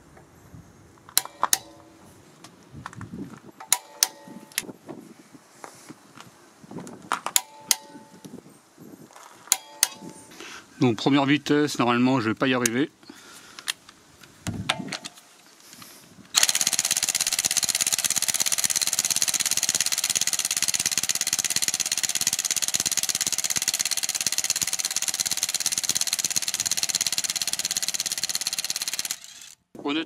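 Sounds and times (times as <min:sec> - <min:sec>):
impact wrench hammering: 0:03.6 - 0:04.6, 0:07.4 - 0:08.2, 0:09.5 - 0:10.3, 0:16.4 - 0:29.2
small handling clicks: 0:13.5 - 0:17.1.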